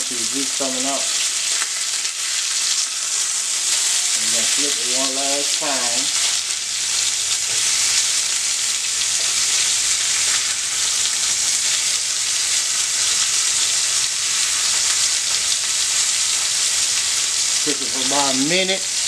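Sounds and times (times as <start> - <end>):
burger patties sizzling in pan: 0.0 - 19.0.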